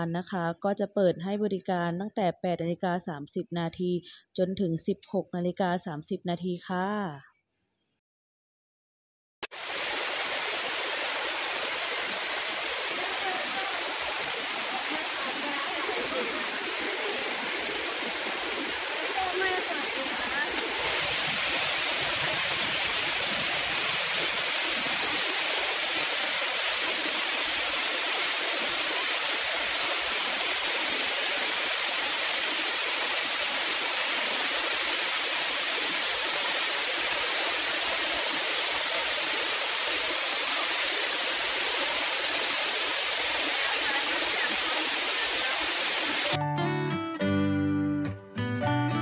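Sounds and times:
waterfall rushing: 9.5s - 46.4s.

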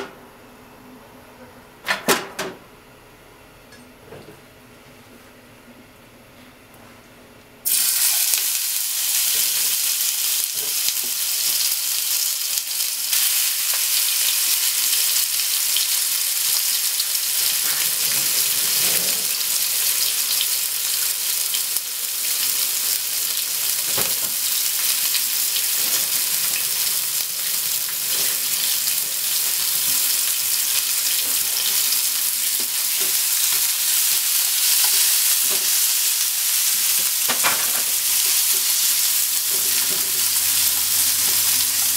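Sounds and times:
meat sizzling in hot oil: 7.6s - 41.9s.

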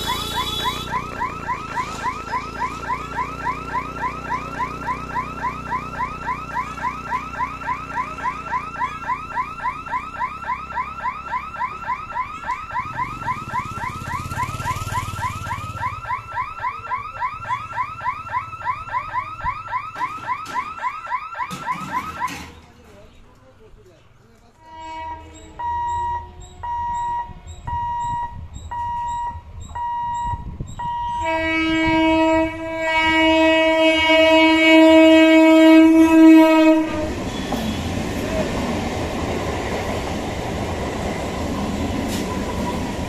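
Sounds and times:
motorcycle engine passing: 12.8s - 16.2s
level crossing hooter chirping: 24.8s - 31.4s.

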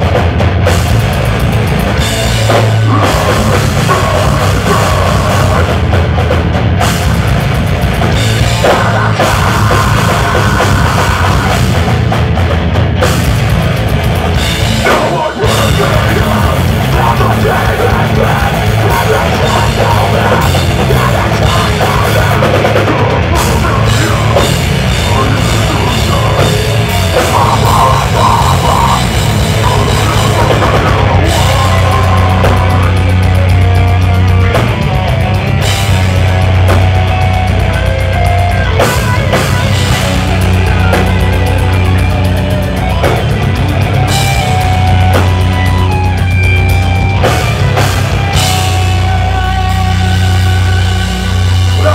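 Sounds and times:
bass guitar: 0.0s - 51.9s
distorted guitars: 0.0s - 51.9s
fast dense drumming: 0.0s - 51.9s
screamed vocals: 2.8s - 5.8s, 8.6s - 11.8s, 14.8s - 33.0s.

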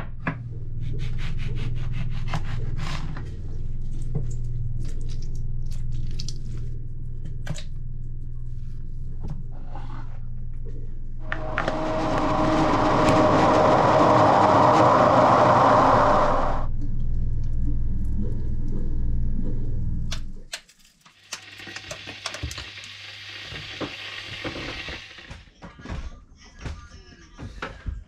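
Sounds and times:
blender running: 11.2s - 16.7s, 21.2s - 25.3s.

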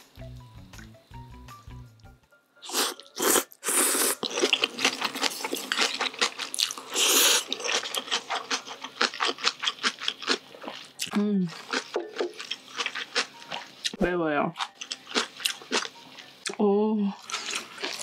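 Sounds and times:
person slurping noodles: 2.6s - 5.6s, 6.6s - 7.6s
wet chewing: 2.7s - 14.0s, 14.6s - 16.6s, 17.2s - 18.0s.

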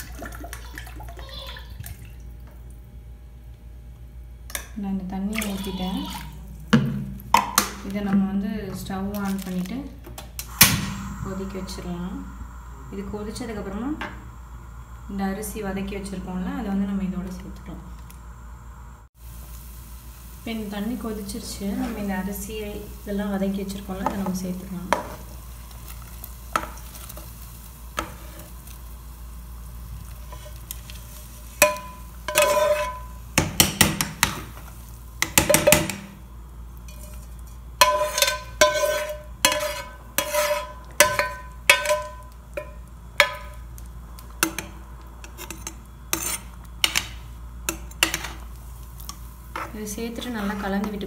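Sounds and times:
boiling water: 0.0s - 3.9s, 4.9s - 51.0s
metal ladle scraping a pan: 31.5s - 33.2s, 36.9s - 43.6s, 45.2s - 47.0s.

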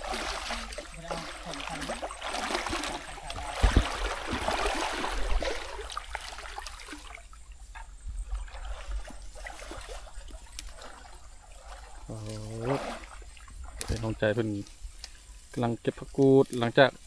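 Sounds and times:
stream water splashing: 0.0s - 17.0s
low thump: 3.4s - 4.5s
rustles and clicks of picking plants: 10.2s - 11.1s, 11.7s - 12.7s, 13.6s - 17.0s.

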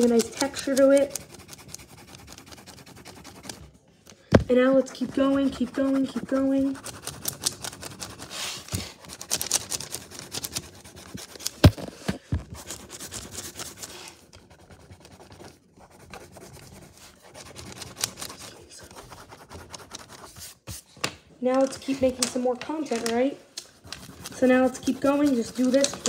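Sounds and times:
pencil scratching on paper: 0.0s - 20.8s, 21.8s - 26.0s.

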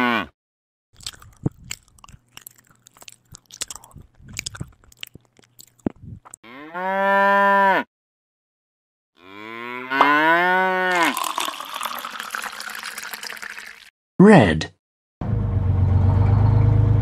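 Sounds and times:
cow mooing: 0.0s - 0.3s, 6.5s - 7.9s, 9.2s - 11.1s
crunchy chewing: 1.0s - 6.4s
liquid pouring into bucket: 10.9s - 13.9s.

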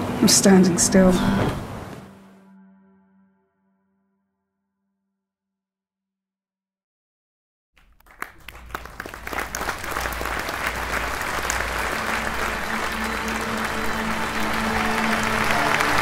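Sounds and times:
audience applause: 7.8s - 16.0s.

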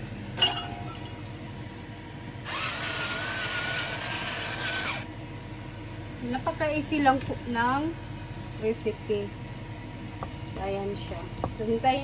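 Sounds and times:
electric pepper grinder grinding: 2.4s - 5.1s.

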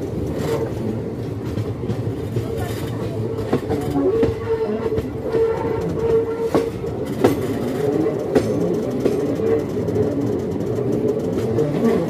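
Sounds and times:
train rumbling on track: 0.0s - 12.0s
wheels clacking over rail joints: 0.0s - 12.0s
wheels squealing: 3.2s - 12.0s.

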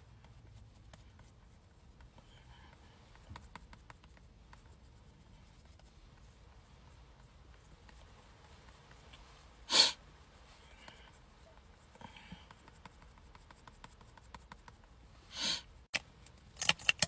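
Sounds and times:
person sniffing: 9.5s - 12.8s, 15.2s - 15.8s.

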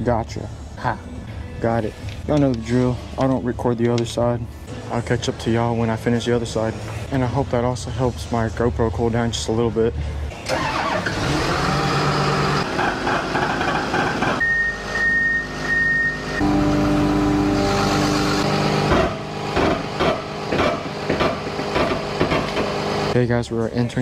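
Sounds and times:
diesel engine running: 10.4s - 23.2s.

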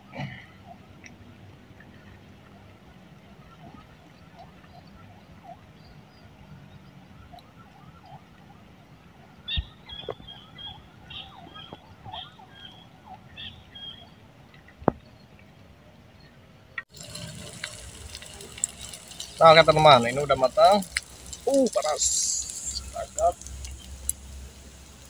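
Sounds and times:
bird chirping: 9.4s - 14.2s
leaves sizzling in oil: 16.9s - 25.0s.

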